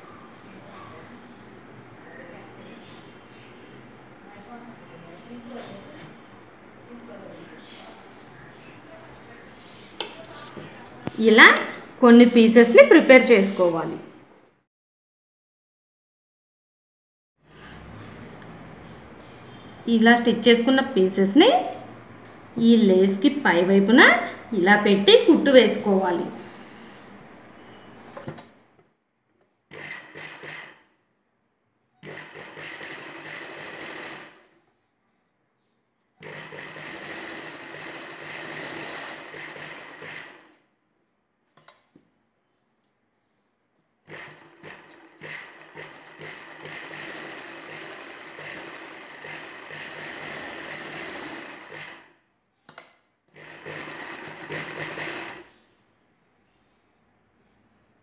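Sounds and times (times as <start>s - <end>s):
sewing machine running: 29.7s - 30.9s, 32.0s - 34.6s, 36.2s - 40.6s, 44.1s - 52.2s, 53.3s - 55.5s.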